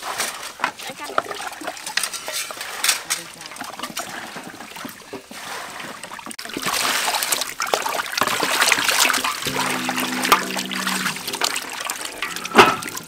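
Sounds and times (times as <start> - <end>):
water splashing in a basin: 1.0 - 13.0
steady low droning tone: 9.5 - 13.0.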